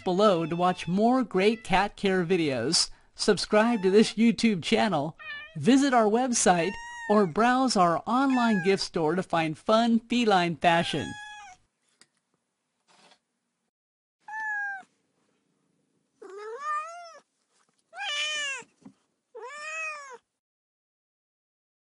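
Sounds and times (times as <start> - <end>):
cat meowing: 0.4 - 1.7, 5.2 - 5.6, 6.6 - 7.1, 8.3 - 8.8, 10.9 - 11.6, 14.3 - 14.9, 16.2 - 17.3, 18.0 - 18.7, 19.4 - 20.3.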